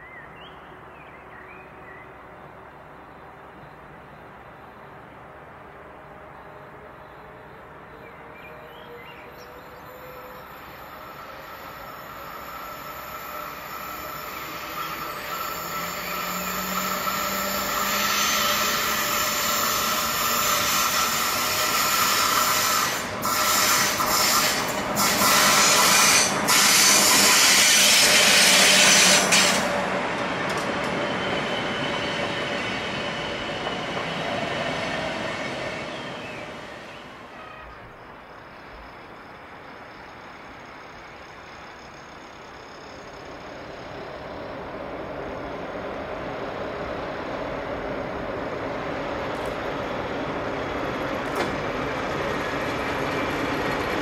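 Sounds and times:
electric locomotive passing: 0.0 - 54.0
high wheel squeal: 8.7 - 38.0.

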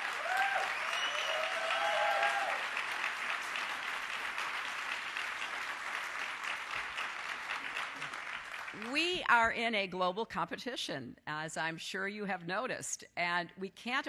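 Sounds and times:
audience clapping: 0.0 - 9.2.

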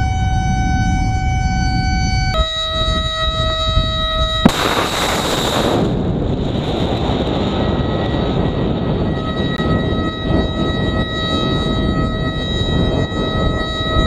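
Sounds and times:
low wind-like rumble: 0.0 - 14.0
rocket motor roaring: 4.4 - 8.9
sharp crack: 4.5 - 7.3.

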